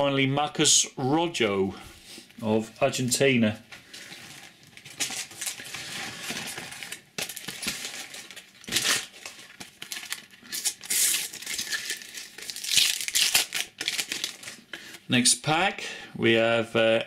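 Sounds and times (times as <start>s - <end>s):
wrapper crinkling and tearing: 4.0s - 14.7s.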